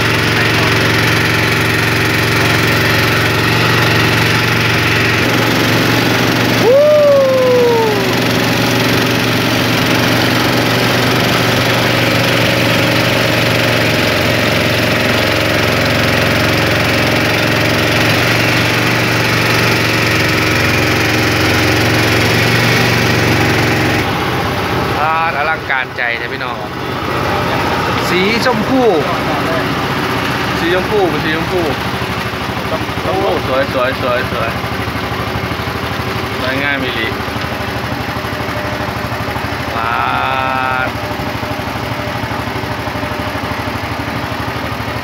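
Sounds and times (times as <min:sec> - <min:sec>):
boat engine running: 0:00.0 - 0:45.0
short rising and falling whoop: 0:06.4 - 0:08.7.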